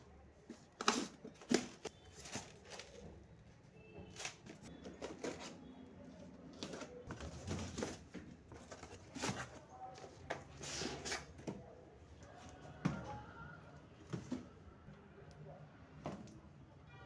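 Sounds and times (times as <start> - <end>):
cardboard box and tubs handled: 0.3 - 3.5, 4.1 - 11.8, 14.0 - 14.6.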